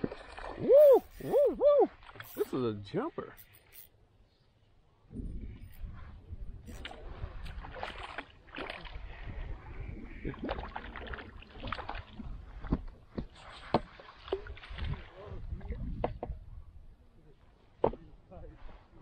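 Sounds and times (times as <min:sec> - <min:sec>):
water splashing: 0:00.0 - 0:02.8, 0:06.7 - 0:15.4
fishing reel winding: 0:00.8 - 0:01.4, 0:02.2 - 0:02.6, 0:03.3 - 0:03.9
wind rumble on microphone: 0:05.1 - 0:17.3.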